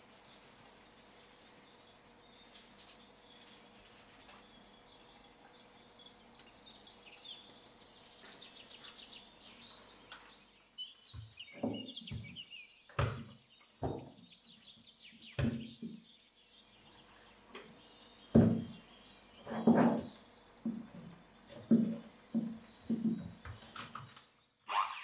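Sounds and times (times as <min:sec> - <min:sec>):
birds chirping faintly: 0:00.0 - 0:25.0
dull thuds from kitchen work: 0:18.3 - 0:18.8, 0:21.6 - 0:23.6.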